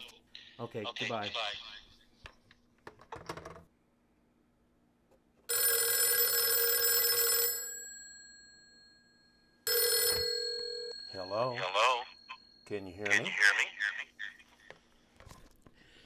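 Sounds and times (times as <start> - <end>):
telephone bell ringing: 5.5 - 13.5.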